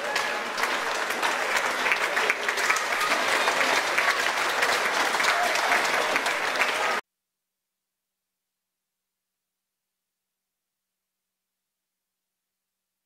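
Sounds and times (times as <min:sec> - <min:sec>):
crowd applauding and cheering: 0:00.0 - 0:07.0.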